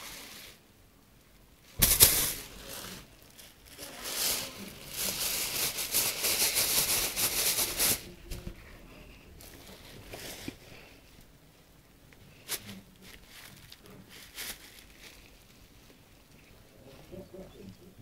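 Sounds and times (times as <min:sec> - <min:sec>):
rustling against phone microphone: 0:01.6 - 0:11.3, 0:12.2 - 0:17.5
scratchy scuffling: 0:01.8 - 0:10.9.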